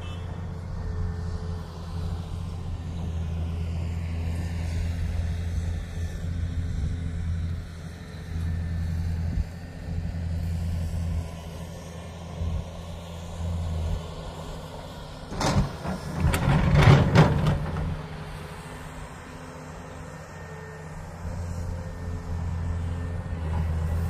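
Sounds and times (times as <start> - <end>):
heavy vehicle engine humming: 0.0 - 24.0.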